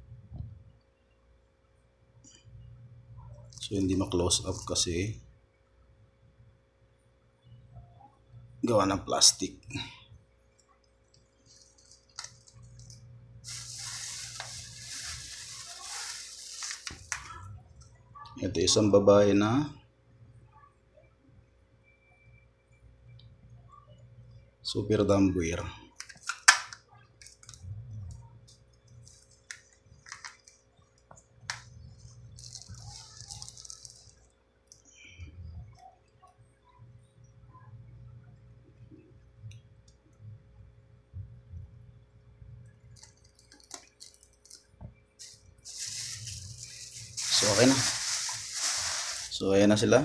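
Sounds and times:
plastic bags crinkling: 0:11.4 - 0:17.5, 0:31.5 - 0:34.3, 0:43.0 - 0:49.4.

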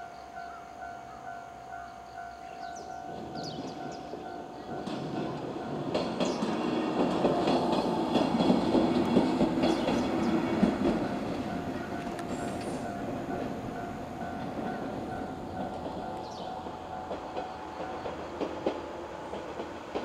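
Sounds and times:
train wheels clattering over rails: 0:02.6 - 0:20.0
level crossing alarm ringing: 0:10.4 - 0:18.2.

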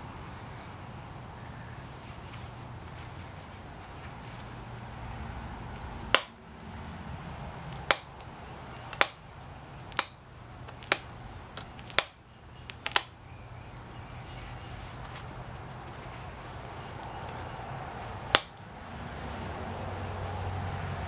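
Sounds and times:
sharp stone flaking clicks: 0:07.7 - 0:13.9.

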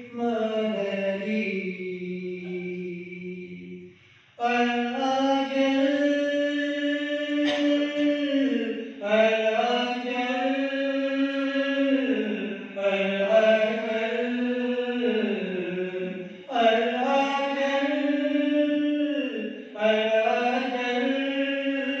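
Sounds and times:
men chanting into microphones: 0:04.4 - 0:22.0.

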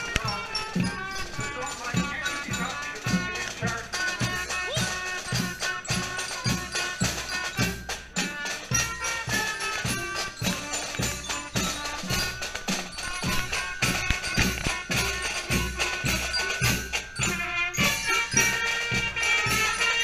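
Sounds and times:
drums and cymbals beating: 0:00.0 - 0:20.0
marching band playing: 0:00.0 - 0:20.0
saxophones playing tune: 0:00.0 - 0:20.0.

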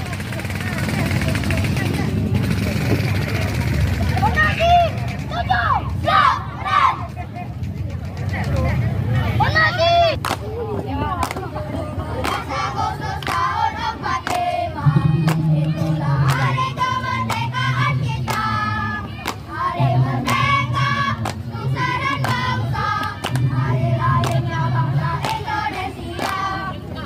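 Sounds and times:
young voices chanting in unison: 0:05.3 - 0:07.1, 0:12.0 - 0:27.0.

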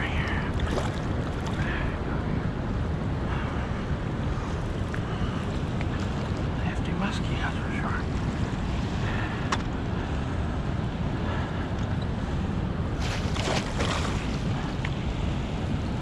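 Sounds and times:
turbulent water rushing: 0:00.0 - 0:16.0
wind buffeting microphone: 0:00.0 - 0:16.0.

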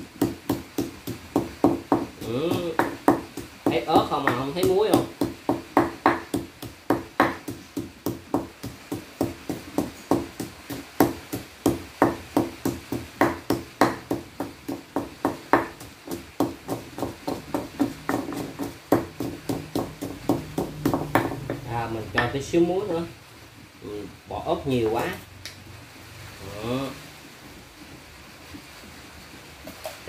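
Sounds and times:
pestle pounding in a mortar: 0:00.0 - 0:22.5.

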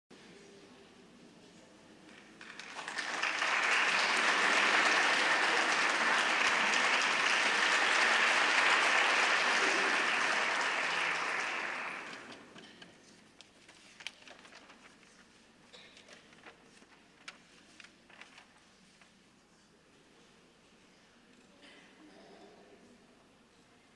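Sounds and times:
audience applauding: 0:02.4 - 0:12.6.

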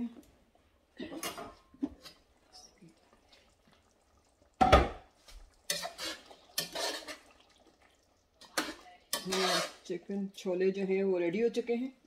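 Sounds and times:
spoon scraping a metal pot: 0:05.6 - 0:07.4, 0:08.4 - 0:09.9.

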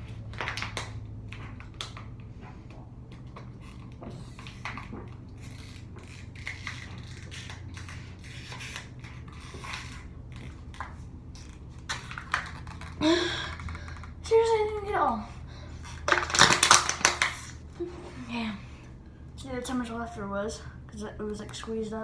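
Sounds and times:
plastic bottle crinkling: 0:03.7 - 0:14.2, 0:15.8 - 0:17.6.

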